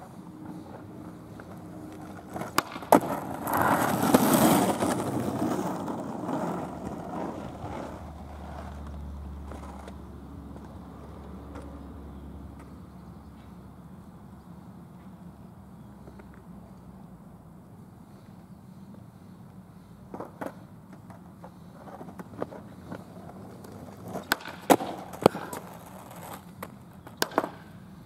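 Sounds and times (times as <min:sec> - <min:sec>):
skateboard wheels rolling on asphalt: 0:00.0 - 0:28.0
skateboard clacks: 0:00.4 - 0:11.7, 0:20.0 - 0:27.9.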